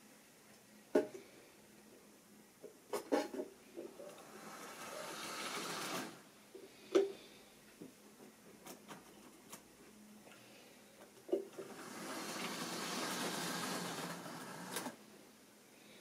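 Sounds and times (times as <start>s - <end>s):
model locomotive motor whirring: 3.9s - 6.2s, 11.6s - 15.0s.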